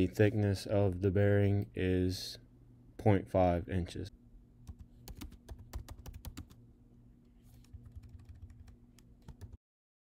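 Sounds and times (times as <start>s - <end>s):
typing on computer keyboard: 4.7s - 6.6s, 7.5s - 9.6s.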